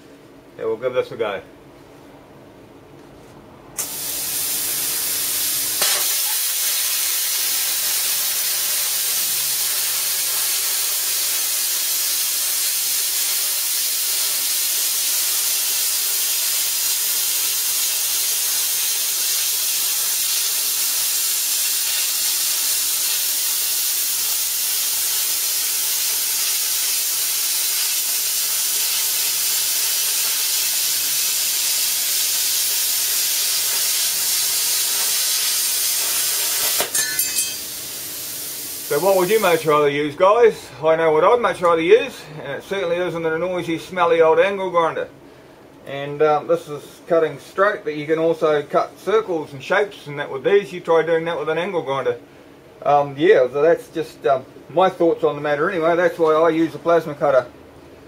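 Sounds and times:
plasma cutter hissing: 3.8 - 39.8.

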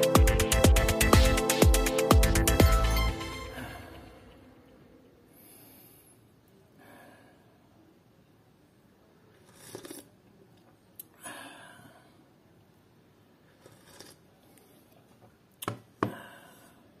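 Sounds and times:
soft breathy noises: 3.4 - 8.0, 11.0 - 12.4, 13.4 - 15.2, 16.0 - 17.0.

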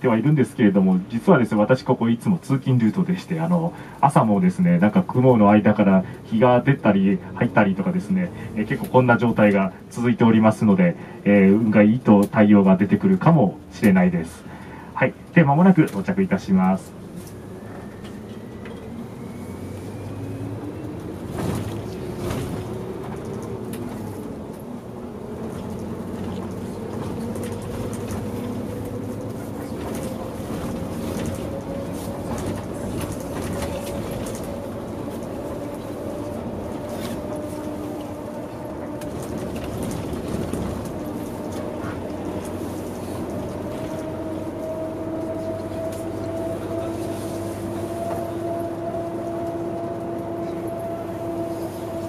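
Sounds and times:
coach interior running drone: 0.0 - 52.0
rising whine: 17.1 - 21.2.

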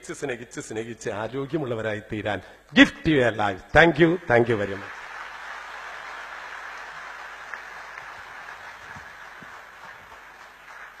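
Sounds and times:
large audience applauding: 4.6 - 11.0.

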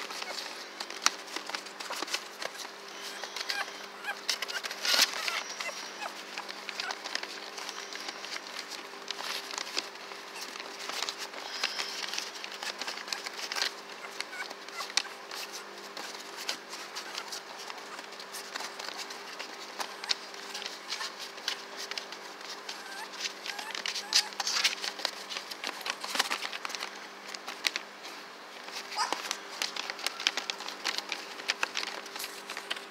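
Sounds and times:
paper rustles: 0.0 - 32.9
puppies scrabbling on newspaper: 0.0 - 32.9
puppy squeaks: 1.8 - 8.4, 10.4 - 15.2, 22.6 - 24.6, 28.9 - 29.4.

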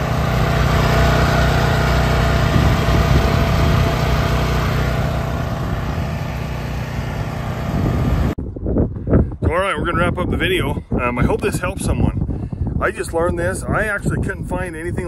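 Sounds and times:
generator engine running: 0.0 - 8.4.

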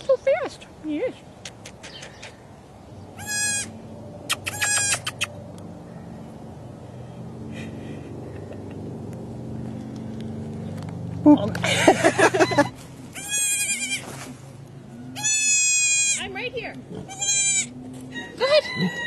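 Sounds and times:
steady low hum: 1.2 - 18.7
baby goat bleating: 3.2 - 3.7, 4.5 - 5.2, 13.2 - 14.1, 15.2 - 16.2, 17.0 - 17.8.

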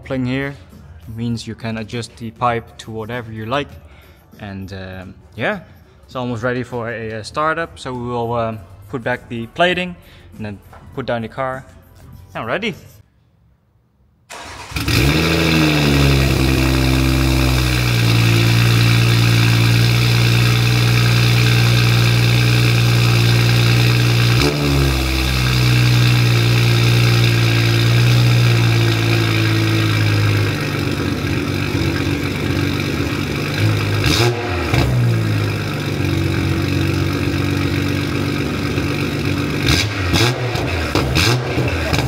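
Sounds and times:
car engine cold start and idle: 14.3 - 42.0.

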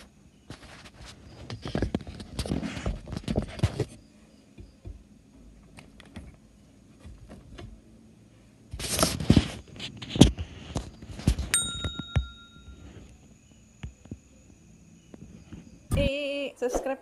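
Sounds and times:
knocks and rubbing of handling: 4.6 - 7.8.

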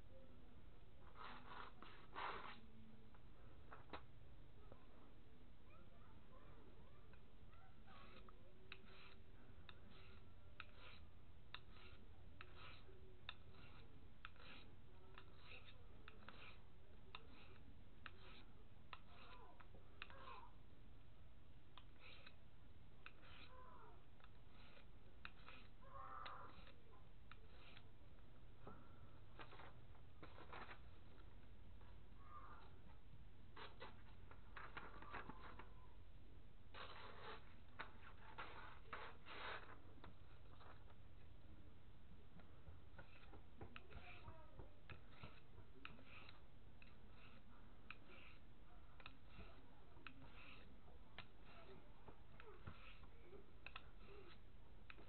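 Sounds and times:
knife scraping on diamond sharpener: 1.0 - 2.7, 7.1 - 20.6, 21.7 - 28.0, 33.5 - 36.0, 36.7 - 41.3, 42.9 - 55.0
knife slicing paper: 9.9 - 16.6, 23.2 - 23.7, 36.7 - 39.8, 47.0 - 48.4.

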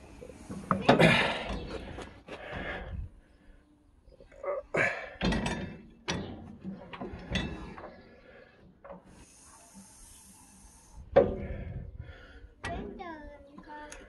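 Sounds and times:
steady high hiss: 9.1 - 11.1.

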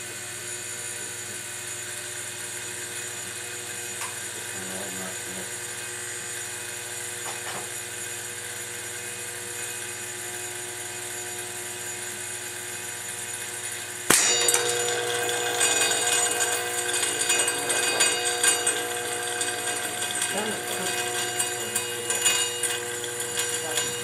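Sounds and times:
hard drive spinning whine: 0.0 - 24.0
pellet striking sharp crack: 14.1 - 14.7.

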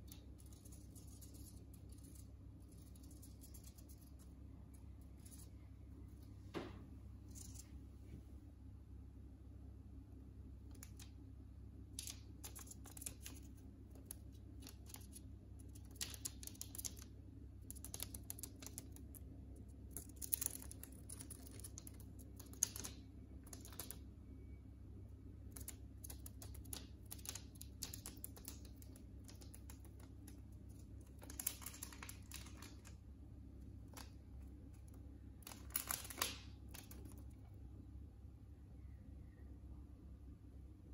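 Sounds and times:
bird pecking at newspaper: 11.9 - 19.2, 19.9 - 24.0, 25.5 - 33.0, 33.7 - 37.2.

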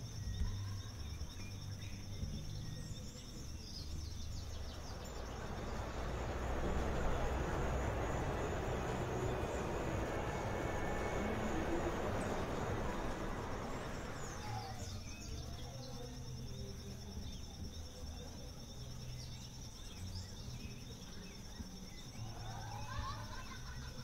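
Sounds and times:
high insect trill: 0.0 - 24.0
passing traffic: 3.8 - 15.4.

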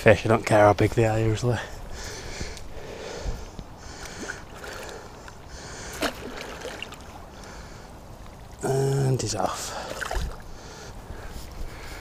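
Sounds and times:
water sloshing and splashing: 4.0 - 7.4, 9.7 - 10.6.

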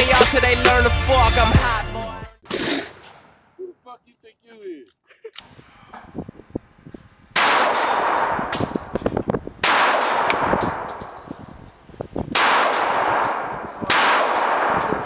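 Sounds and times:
pistol shots echoing: 7.4 - 11.3, 12.3 - 15.0.

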